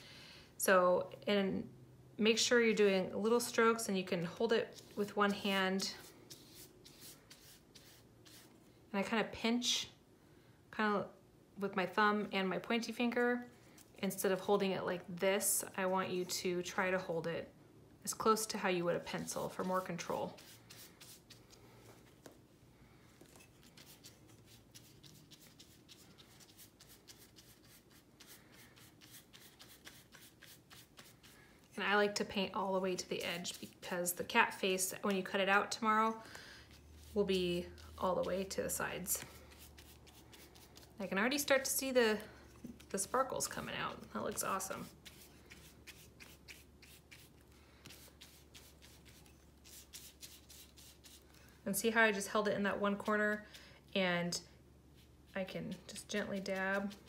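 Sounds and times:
paintbrush strokes on paper: 0:04.1 - 0:08.7, 0:18.5 - 0:22.4, 0:23.2 - 0:51.5, 0:54.9 - 0:57.0.

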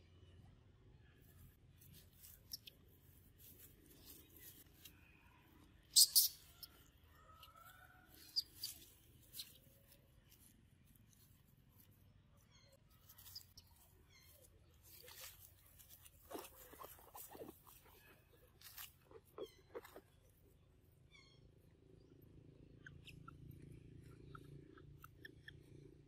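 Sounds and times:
faint chirps: 0:04.0 - 0:09.6.

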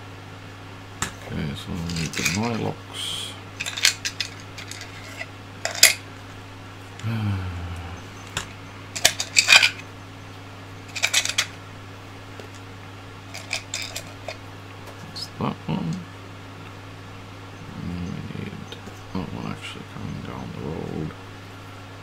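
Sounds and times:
screws and nuts clinking: 0:01.9 - 0:02.6, 0:03.6 - 0:06.0, 0:09.0 - 0:09.8, 0:10.9 - 0:11.5, 0:13.3 - 0:14.4.

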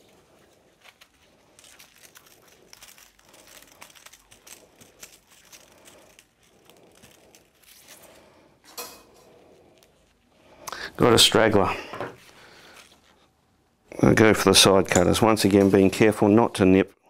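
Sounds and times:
steel wires crinkling: 0:00.0 - 0:10.7, 0:12.2 - 0:13.3.

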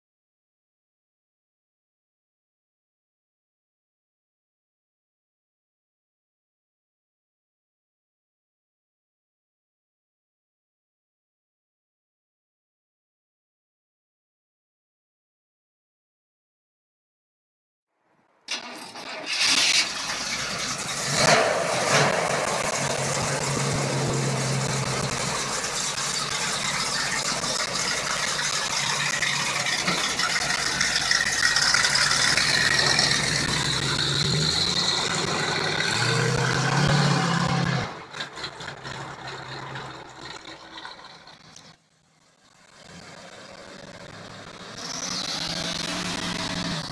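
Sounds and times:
car engine idling: 0:18.5 - 0:46.9
car engine starting and revving: 0:18.5 - 0:46.9.

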